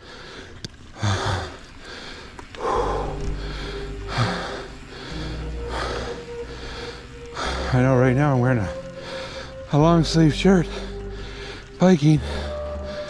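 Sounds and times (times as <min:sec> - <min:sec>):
breathy exhales: 0:00.0 - 0:07.8, 0:08.8 - 0:09.7
low rumble of riding noise: 0:00.0 - 0:13.0.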